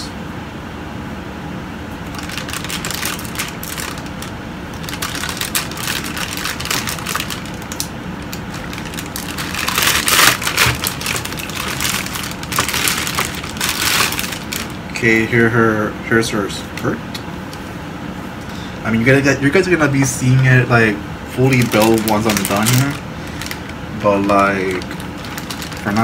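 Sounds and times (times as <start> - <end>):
plastic bags crinkling: 2.0 - 15.0, 21.3 - 26.0.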